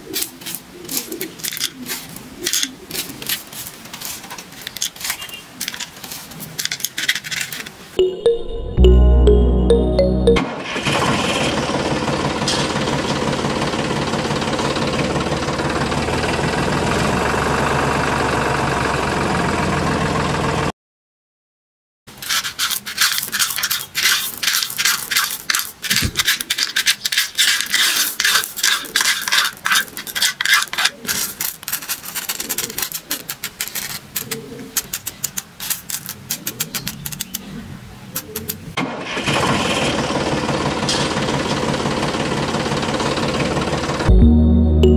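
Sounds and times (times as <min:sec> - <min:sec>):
stones clicking and rattling: 0:00.4 - 0:07.7, 0:22.2 - 0:37.5
hand shovel scraping pebbles: 0:22.1 - 0:37.2.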